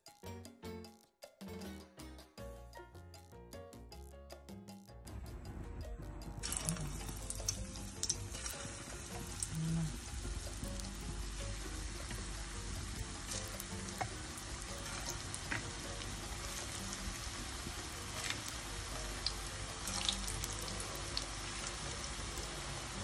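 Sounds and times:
food deep-frying in oil: 6.4 - 23.0.

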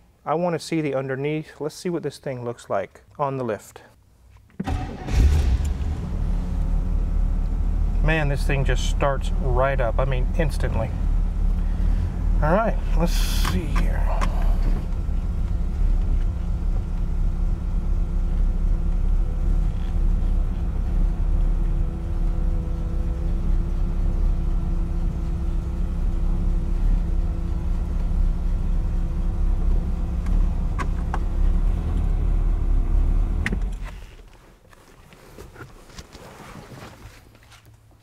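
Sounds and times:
car engine idling: 4.6 - 34.2.

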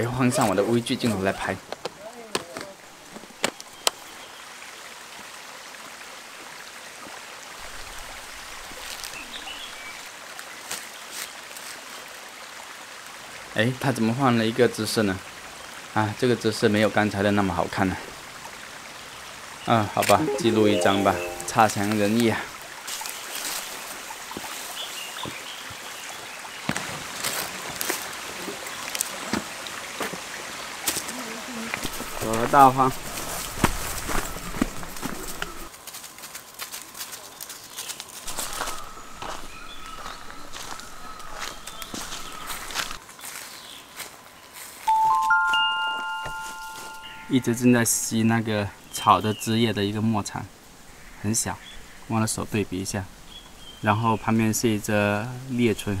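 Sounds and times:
stream water rushing: 2.8 - 35.7.

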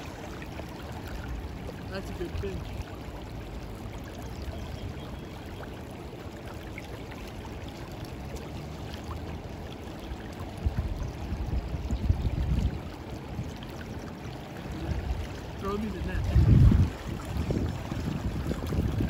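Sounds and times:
river flowing and splashing: 0.0 - 19.0
low buffeting on microphone: 10.4 - 13.7, 14.4 - 19.0.

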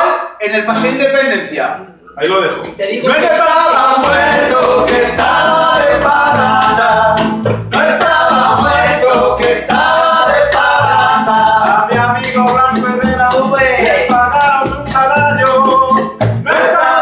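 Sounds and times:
men singing loudly: 3.0 - 17.0
plucked double bass: 4.0 - 16.5
strummed acoustic guitar: 4.0 - 16.8.

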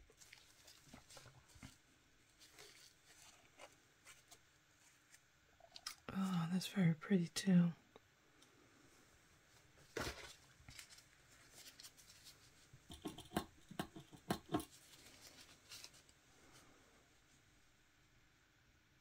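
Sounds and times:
paper towel rustling: 0.0 - 5.3, 9.4 - 12.8, 14.7 - 16.8.

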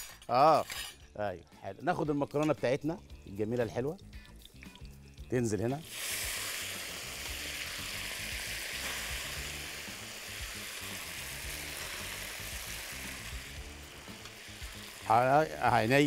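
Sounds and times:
pasta sizzling in a pan: 5.8 - 16.0.

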